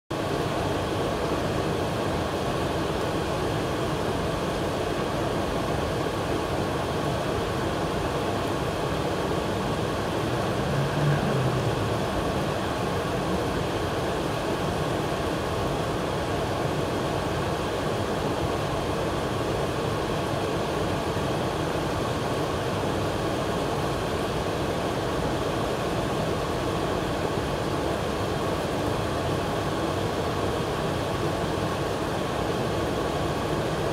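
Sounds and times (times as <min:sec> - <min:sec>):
waterfall rushing: 0:00.2 - 0:33.9
rain falling: 0:08.4 - 0:14.4.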